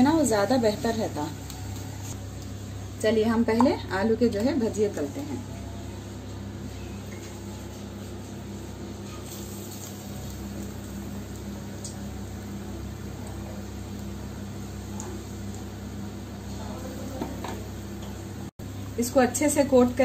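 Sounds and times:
potatoes frying in hot oil: 8.9 - 20.0.

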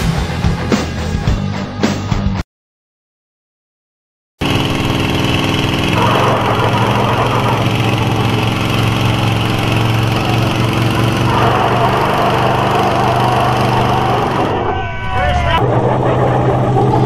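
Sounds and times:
truck engines running hard: 4.4 - 17.0.

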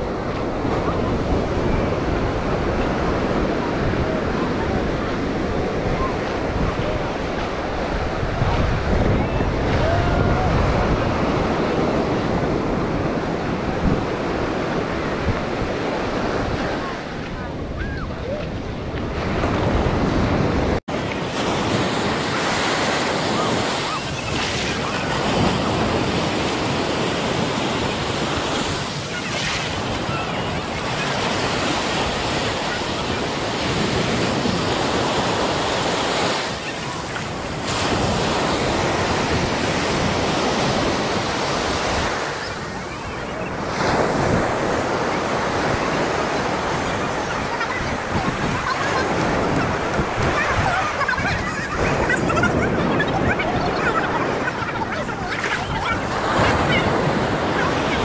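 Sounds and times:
waves breaking on beach: 0.0 - 58.0
wind buffeting microphone: 0.0 - 58.0.

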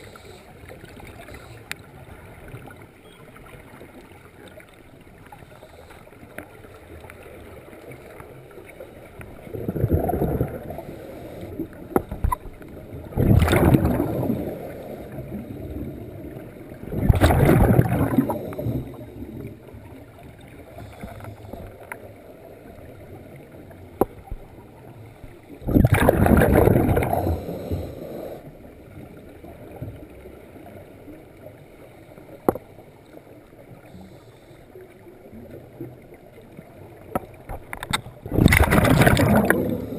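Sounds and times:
underwater exhaust bubbles: 0.0 - 39.9
low steady hiss: 26.5 - 39.9.

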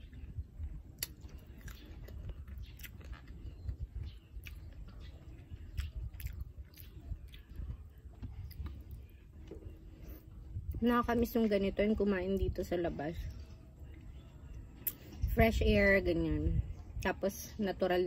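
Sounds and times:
low steady rumble: 0.0 - 18.0
person chewing: 0.8 - 9.2
wet mouth clicks: 1.0 - 3.2.

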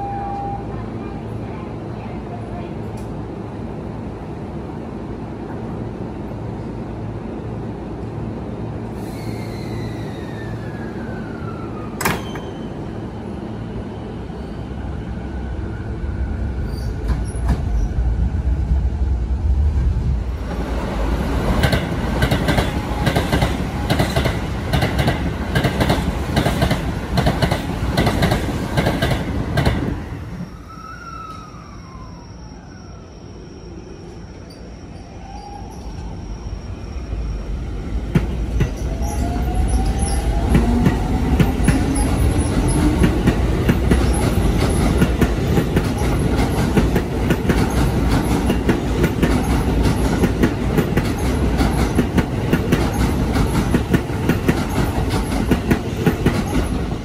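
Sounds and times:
standing train humming: 12.0 - 30.6, 35.9 - 57.0.

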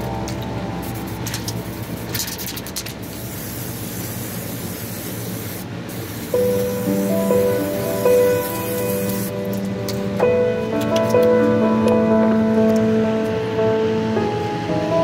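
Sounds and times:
background music: 0.0 - 3.6, 6.4 - 15.0
aerosol spray can hissing: 0.8 - 9.4.

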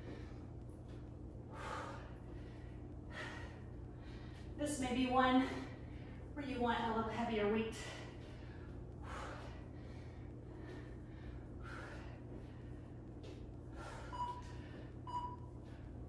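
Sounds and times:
person breathing heavily: 1.4 - 4.6, 7.7 - 16.0.

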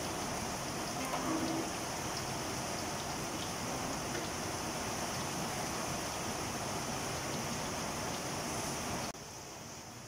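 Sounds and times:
food frying in hot oil: 0.0 - 10.0
rain falling: 0.0 - 10.0.

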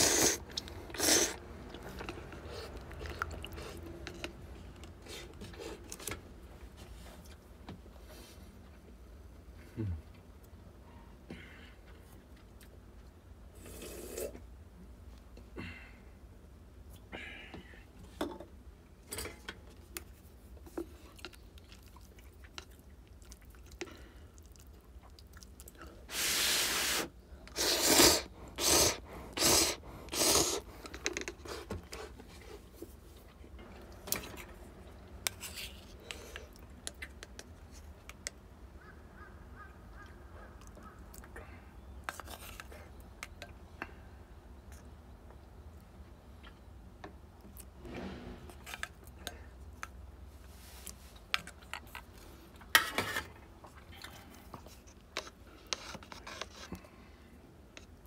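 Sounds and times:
loud slurps: 0.0 - 3.8, 26.1 - 30.7
person chewing: 0.0 - 6.2, 20.9 - 26.0.

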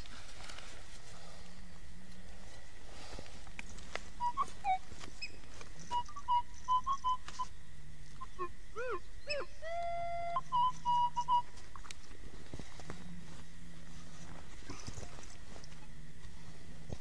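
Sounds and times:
metal detector whistle tones: 4.2 - 5.3, 9.3 - 11.5
metal detector beeps: 4.2 - 7.5, 8.8 - 11.5.

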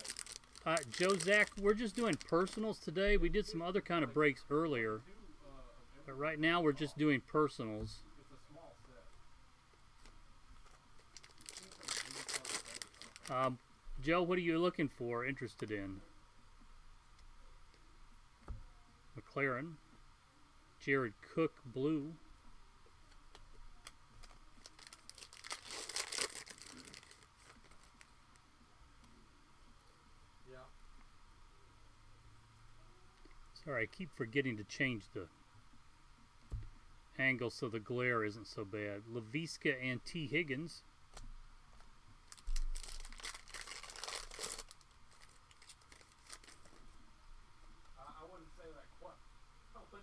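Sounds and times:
foil wrapper tearing and crinkling: 0.0 - 2.7, 11.0 - 13.4, 24.2 - 28.1, 42.3 - 46.8.

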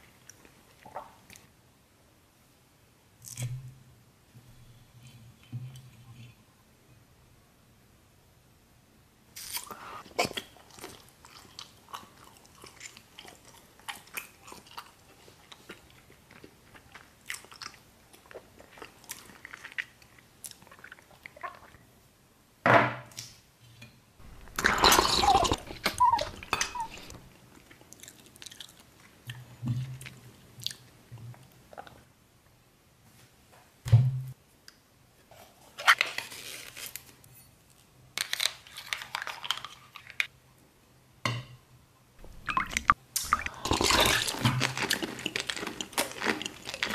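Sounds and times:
chewing and mouth clicks: 10.2 - 21.8, 24.2 - 30.8, 42.2 - 46.9
loud crunching bite: 24.2 - 27.2, 43.2 - 46.9.

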